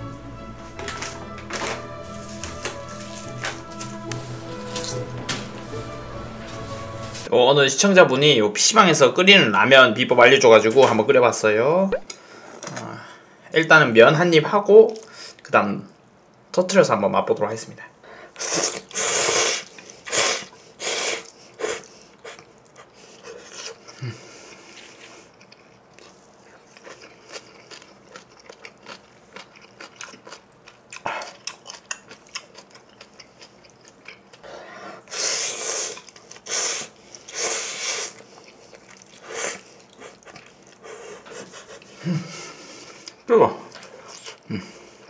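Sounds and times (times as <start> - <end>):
slurping noodles: 18.4 - 23.8, 34.4 - 43.2
chewing: 21.2 - 44.5.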